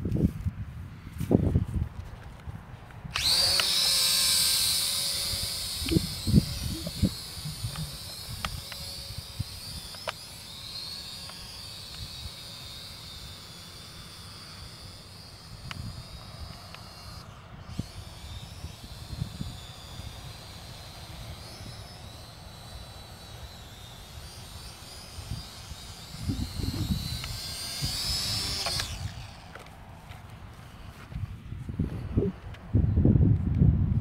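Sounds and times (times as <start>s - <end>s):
wind rumble on microphone: 0.0s - 3.4s, 5.0s - 9.9s, 17.4s - 20.3s, 25.2s - 29.4s, 30.8s - 34.0s
drone propellers whining: 1.2s - 33.0s.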